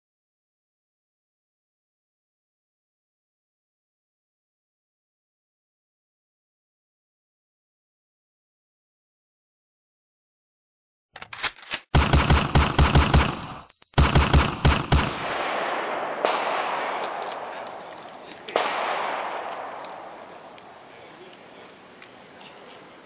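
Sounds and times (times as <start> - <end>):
automatic gunfire bursts: 11.8 - 20.6
single gunshots with echo: 12.0 - 21.1.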